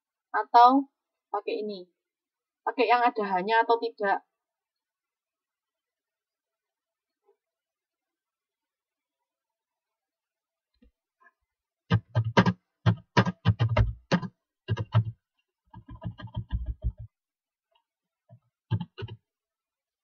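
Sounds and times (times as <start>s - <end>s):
keyboard typing: 11.9s - 17.1s, 18.7s - 19.2s.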